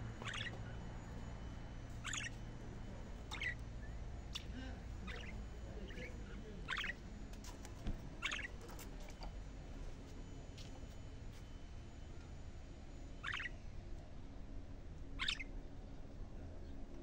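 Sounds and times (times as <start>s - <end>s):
budgerigars chirping: 0.2s - 0.7s, 2.0s - 2.4s, 3.2s - 4.4s, 5.0s - 7.0s, 8.2s - 8.7s, 13.2s - 13.6s, 15.2s - 15.5s.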